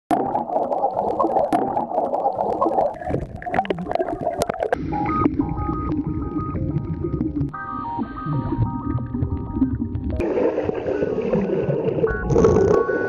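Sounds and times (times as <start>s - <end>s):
underwater bubbling and gurgling: 0.1s - 13.0s
repeating synth music: 4.8s - 10.2s.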